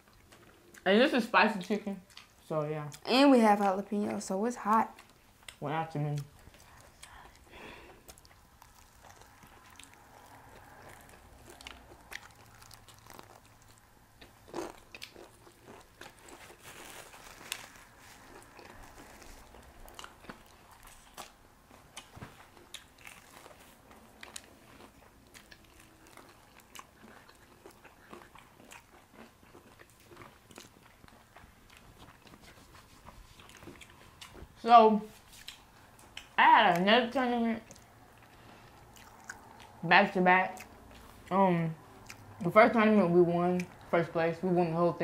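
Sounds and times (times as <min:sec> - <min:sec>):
wet chewing: 0:01.6 - 0:36.9, 0:37.6 - 0:42.5
crunching fried chicken: 0:07.6 - 0:32.4.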